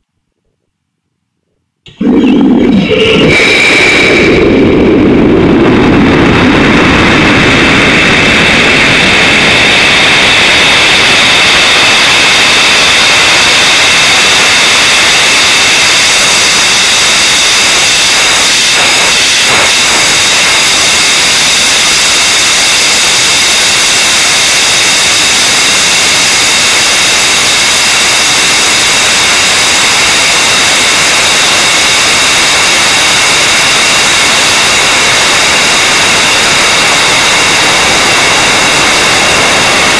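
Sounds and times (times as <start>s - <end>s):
deep rumble: 1.9s - 10.6s
high whining tones: 1.9s - 13.1s
rocket motor rushing: 1.9s - 39.9s
hiss: 6.2s - 39.9s.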